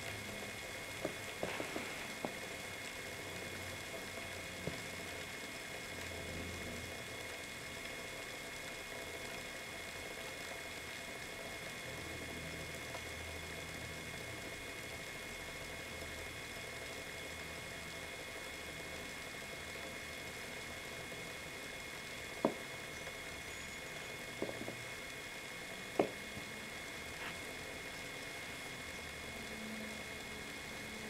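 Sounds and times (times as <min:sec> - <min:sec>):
low wavering hum: 0:10.8 - 0:31.0.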